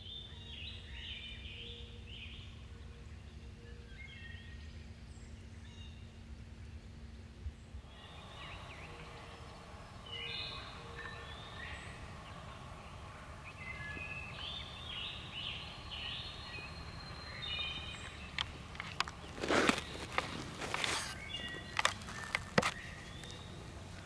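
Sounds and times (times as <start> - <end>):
low background rumble: 0.0 - 24.0
songbirds singing: 0.0 - 24.0.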